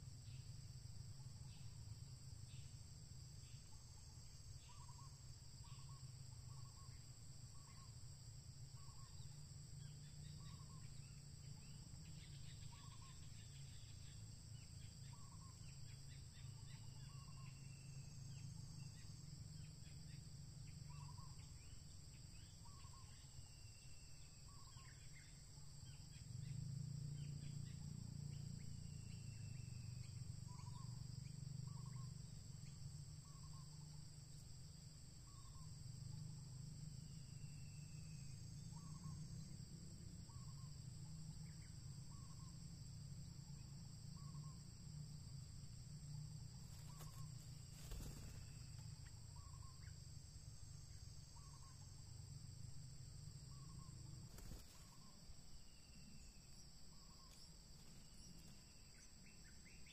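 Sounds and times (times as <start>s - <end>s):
high insect drone: 0.0s - 59.9s.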